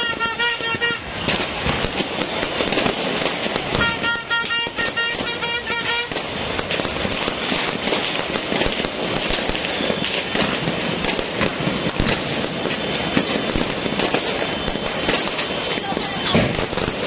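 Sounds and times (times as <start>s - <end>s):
fireworks crackling and banging: 0.0s - 17.0s.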